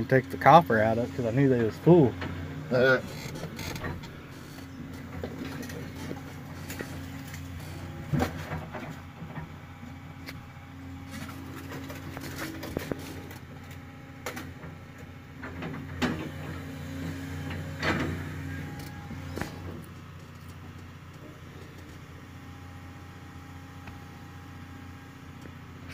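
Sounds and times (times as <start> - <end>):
diesel engine running: 0.0 - 25.9.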